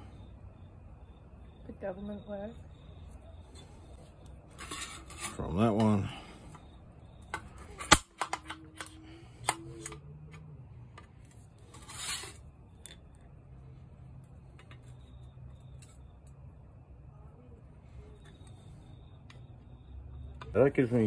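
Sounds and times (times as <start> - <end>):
short metal scrape: 4.5 - 5.4, 11.7 - 12.4.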